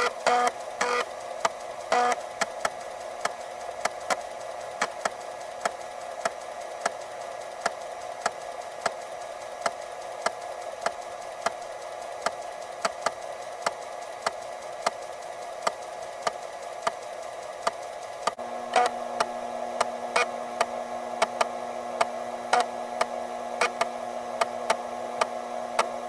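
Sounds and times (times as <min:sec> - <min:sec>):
floppy drive motor whir: 0:00.0 - 0:26.0.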